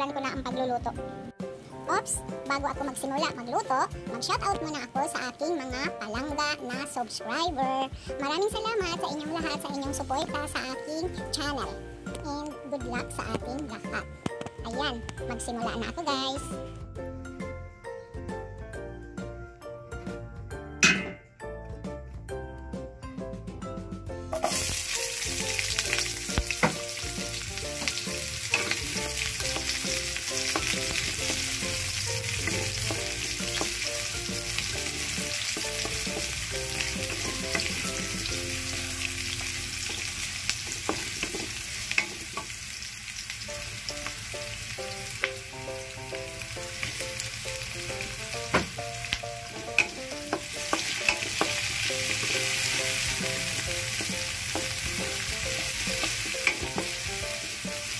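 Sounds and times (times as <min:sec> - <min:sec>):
food sizzling in hot oil: 0:24.3 - 0:57.9
utensil clicking against pan: 0:55.9 - 0:57.0.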